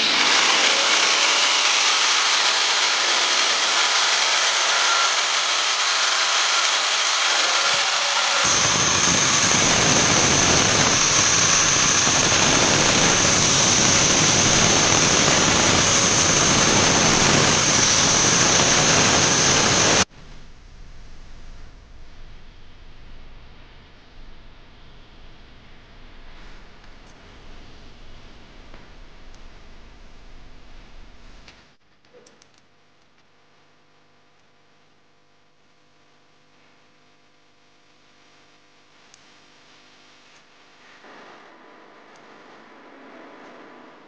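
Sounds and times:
grinder disc grinding steel: 0.0s - 20.0s
angle grinder running: 0.0s - 20.1s.

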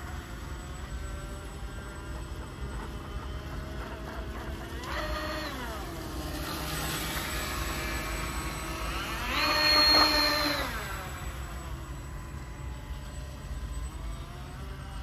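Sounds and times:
electric motors whining: 0.0s - 15.0s.

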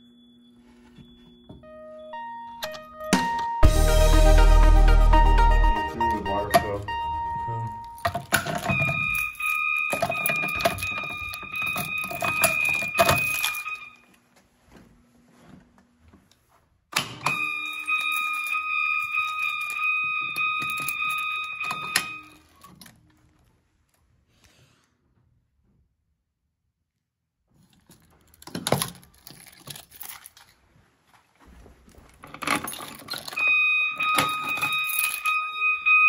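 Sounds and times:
alarm horn high steady tone: 0.0s - 14.0s, 17.3s - 22.4s, 33.4s - 36.0s
keys jangling: 7.9s - 13.9s, 17.4s - 22.9s, 27.6s - 30.6s, 32.2s - 35.5s.

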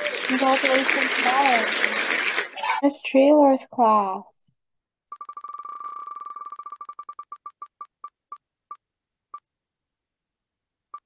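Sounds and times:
spinning wheel electronic ticks: 5.1s - 8.2s.

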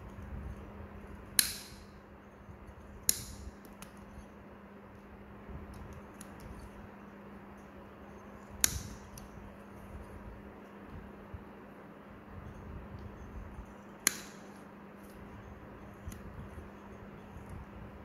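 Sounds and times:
nail nippers snipping: 1.4s - 1.9s, 3.0s - 4.0s, 14.0s - 14.6s.

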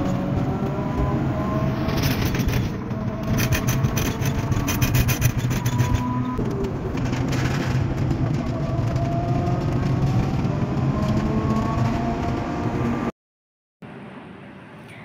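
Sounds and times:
engine drone: 0.0s - 13.1s
road noise: 0.0s - 13.1s, 13.8s - 15.0s
fast rattling: 1.9s - 6.1s.

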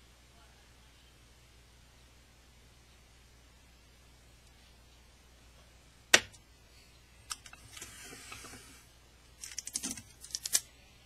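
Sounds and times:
tape tearing crackles: 9.4s - 10.7s.

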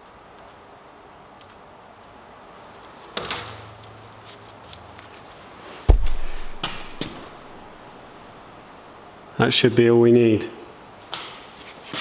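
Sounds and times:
knocks: 5.9s - 7.4s
heavy thud on steel with ring: 5.9s - 7.6s.

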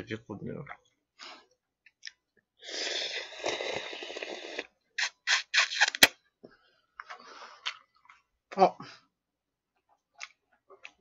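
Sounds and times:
person slurping noodles: 2.6s - 5.9s.

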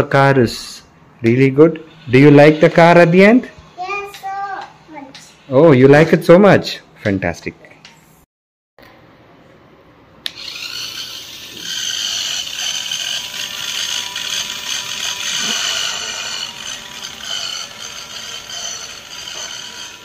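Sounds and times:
toy car high-pitched running: 10.3s - 20.0s.

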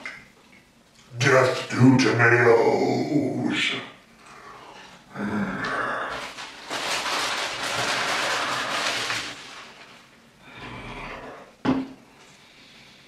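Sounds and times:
paper wrapper crinkling: 6.1s - 10.2s.

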